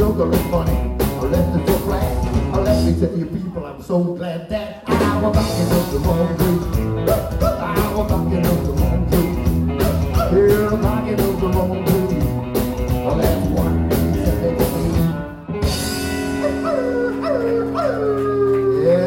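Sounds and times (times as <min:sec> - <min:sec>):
steady drum beat: 0:00.0 - 0:03.0, 0:04.9 - 0:17.2
upright double bass: 0:00.0 - 0:03.2, 0:04.8 - 0:17.8
electric guitar: 0:00.0 - 0:03.6, 0:04.7 - 0:19.0.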